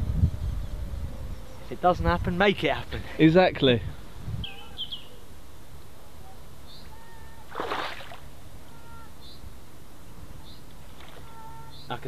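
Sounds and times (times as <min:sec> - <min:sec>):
birds chirping faintly: 0:00.0 - 0:12.0
object splashing into lake: 0:07.5 - 0:08.3, 0:10.9 - 0:11.3.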